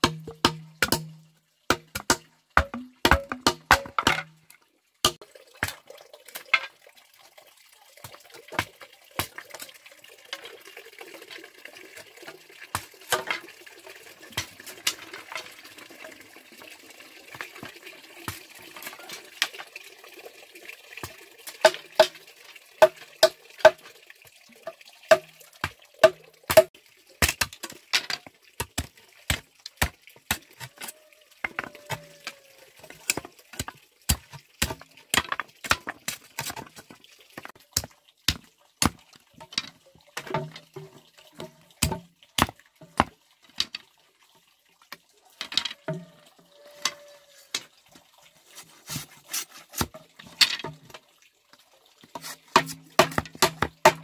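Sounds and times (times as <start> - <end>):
machetes chopping bamboo: 0.0 - 4.3, 26.0 - 27.6, 33.1 - 36.7, 41.8 - 43.1, 52.2 - 54.0.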